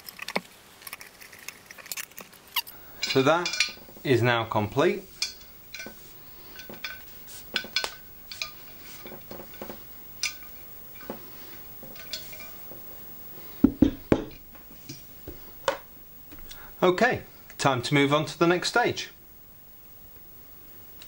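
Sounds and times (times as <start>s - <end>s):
light metallic clinks: 2.7s - 4.2s, 4.8s - 14.4s
metal pole knocking on desk: 13.6s - 14.4s.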